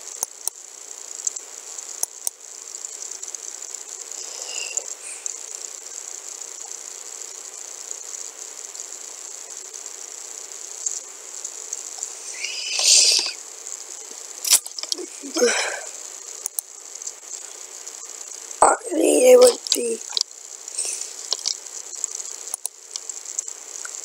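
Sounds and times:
microphone hiss: 0.0s - 24.0s
person sniffing: 4.2s - 5.2s, 12.2s - 13.4s, 14.9s - 16.0s, 20.8s - 21.3s.

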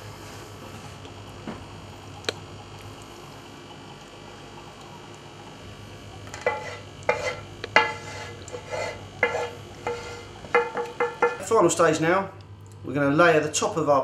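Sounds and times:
spoon scraping sauce from saucepan: 6.3s - 10.4s
spoon knocking against pan: 6.4s - 8.0s, 9.2s - 11.4s.

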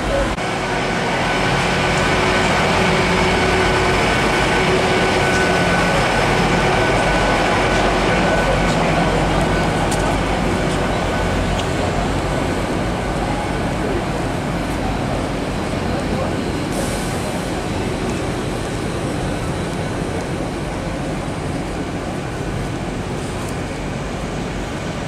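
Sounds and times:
diesel train engines idling: 0.0s - 25.0s.

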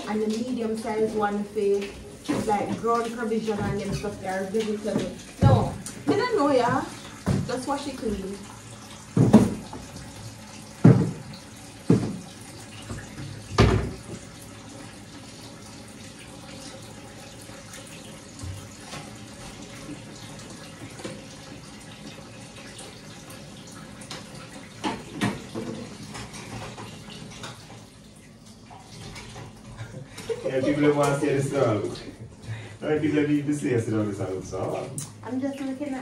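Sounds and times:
tap running into sink: 0.3s - 14.4s, 18.2s - 21.6s, 24.0s - 27.9s.

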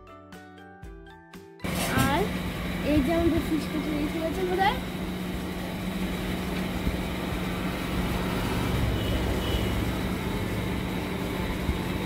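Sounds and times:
constant low hum: 1.6s - 12.0s
low traffic rumble: 1.6s - 12.0s.

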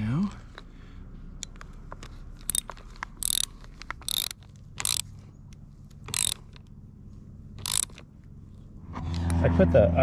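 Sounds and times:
hand ratchet clicking: 1.4s - 5.1s, 6.0s - 6.7s, 7.6s - 8.0s.

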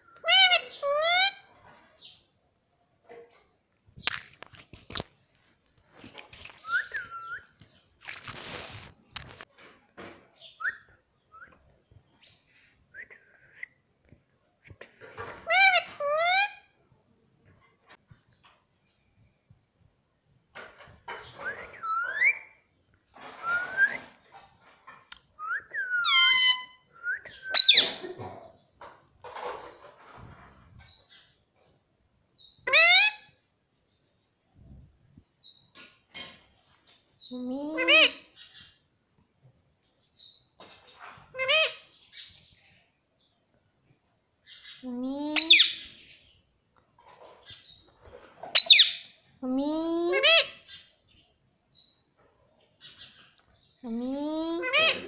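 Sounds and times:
parrot screeching: 0.2s - 1.4s, 54.6s - 55.0s.

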